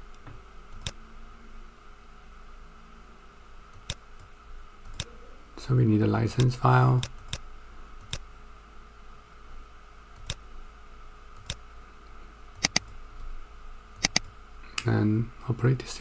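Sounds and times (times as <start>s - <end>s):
faint background hum: 0.0s - 16.0s
mouse button clicks: 12.6s - 12.9s, 14.0s - 14.3s.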